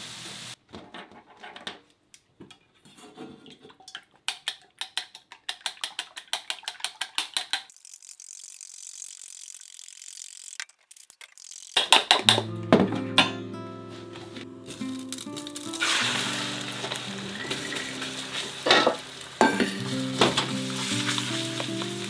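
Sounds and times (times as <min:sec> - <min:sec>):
chopsticks beating eggs in metal bowl: 0:04.2 - 0:12.1.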